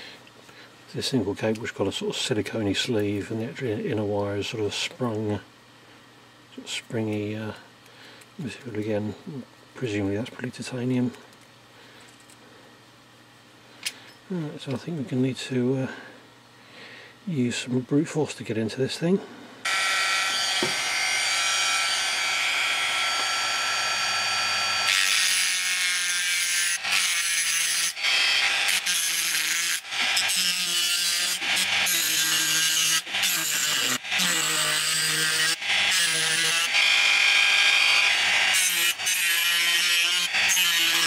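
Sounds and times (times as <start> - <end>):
rotary tool whining: 19.6 - 41.0.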